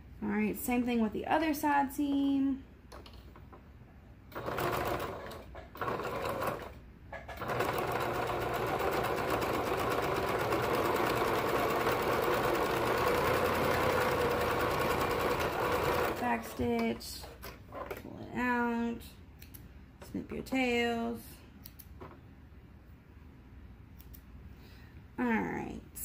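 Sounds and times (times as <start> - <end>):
sewing machine stitching: 4.3 - 16.8.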